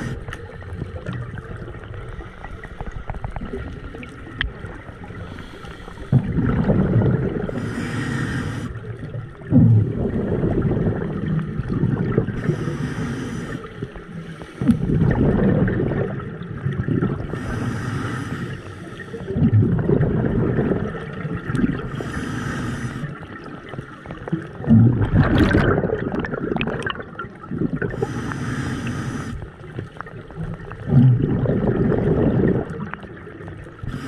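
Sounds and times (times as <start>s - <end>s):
gurgling exhaled bubbles: 0.0s - 14.0s, 14.6s - 17.7s, 19.1s - 34.0s
regulator inhalation hiss: 7.6s - 8.8s, 12.4s - 13.7s, 17.3s - 19.2s, 22.0s - 23.1s, 28.0s - 29.4s.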